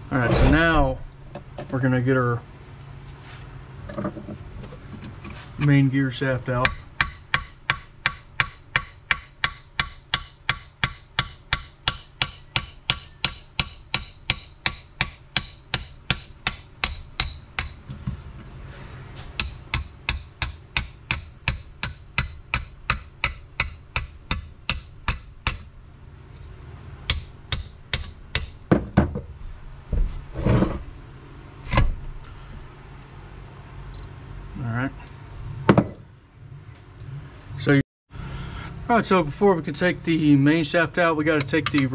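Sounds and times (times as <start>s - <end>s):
hammer striking metal drift: 6.7s - 17.8s.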